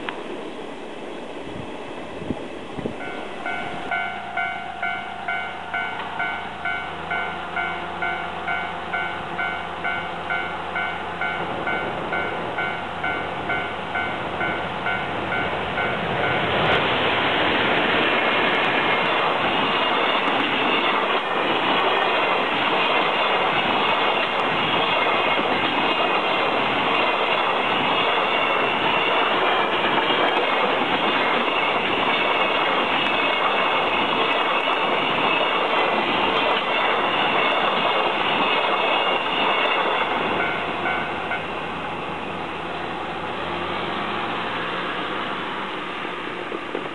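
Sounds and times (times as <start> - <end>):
freight train rumbling past: 0.0 - 46.9
level crossing warning bell: 3.0 - 16.5, 36.2 - 41.7.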